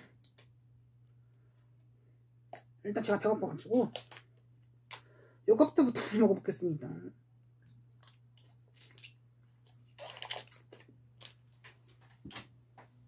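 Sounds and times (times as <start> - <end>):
plastic wrapper crackling: 3.7 - 4.3, 9.8 - 11.4.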